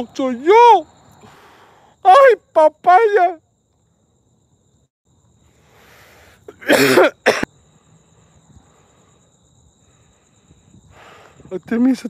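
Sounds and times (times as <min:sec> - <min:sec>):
breathy intake: 0:01.2 - 0:02.0, 0:05.6 - 0:11.5
man coughing: 0:06.5 - 0:07.5.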